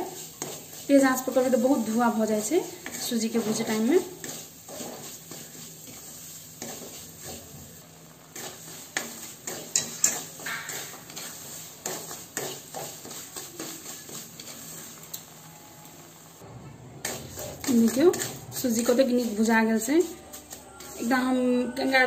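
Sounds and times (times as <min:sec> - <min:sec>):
spatula scraping metal pan: 0:00.0 - 0:07.6, 0:08.3 - 0:14.9, 0:17.0 - 0:22.0
knocks against pan: 0:10.4 - 0:10.9.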